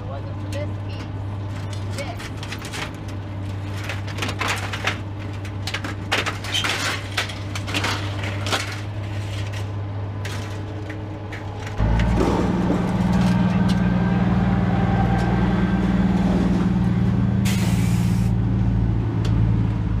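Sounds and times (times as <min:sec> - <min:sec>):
steady low hum: 0:00.0 - 0:20.0
objects clattering and knocking: 0:00.9 - 0:13.9.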